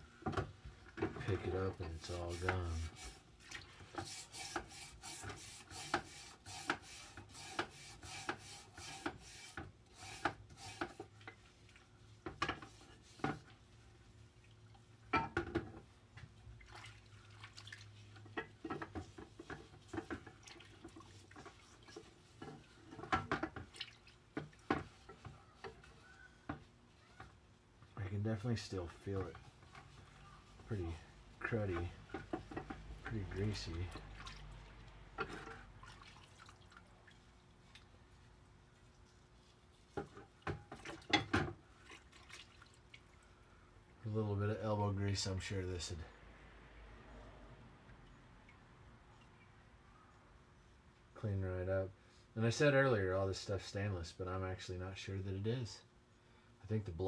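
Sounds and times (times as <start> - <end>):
water sloshing and dripping: 0.2 - 6.1, 8.3 - 44.0, 46.3 - 50.5
wire brush scrubbing metal: 1.4 - 3.3, 3.9 - 11.1.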